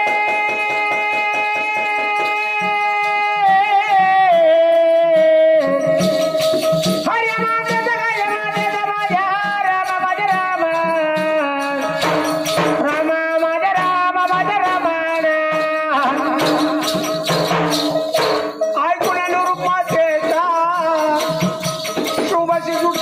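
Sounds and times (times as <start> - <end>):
rattling percussion beat: 0.0 - 23.0
folk melody: 15.8 - 19.8.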